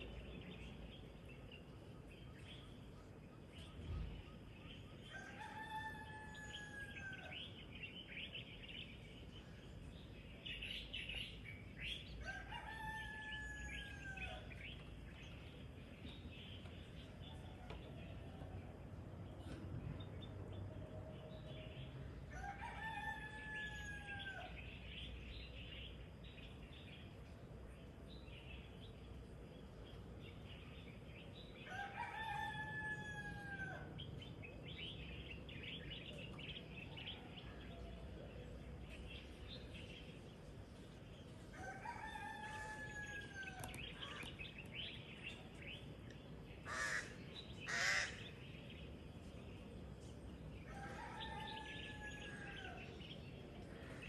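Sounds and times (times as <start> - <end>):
rooster crowing: 12.2 - 14.4, 31.7 - 33.9, 41.6 - 43.8, 50.7 - 52.9.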